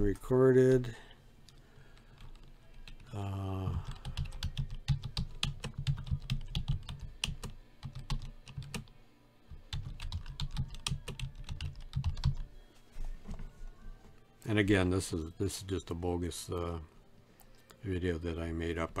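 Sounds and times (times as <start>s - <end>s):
typing on computer keyboard: 3.8s - 8.9s, 9.5s - 12.5s.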